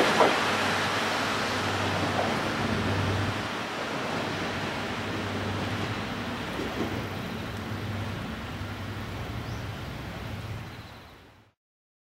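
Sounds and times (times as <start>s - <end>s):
broad rushing noise: 0.0s - 10.8s
diesel railcar engine humming: 4.7s - 10.9s.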